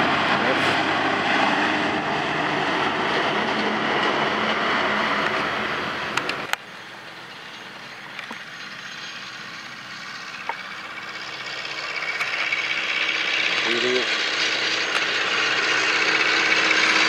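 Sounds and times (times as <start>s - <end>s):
old tractor engine humming: 0.0s - 17.0s
tractor driving past: 0.0s - 17.0s.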